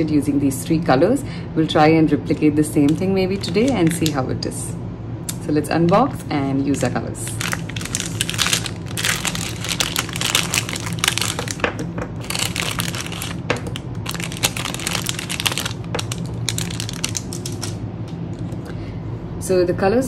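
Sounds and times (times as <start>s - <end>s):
cellophane packaging crinkling: 2.8s - 4.3s, 5.9s - 17.8s.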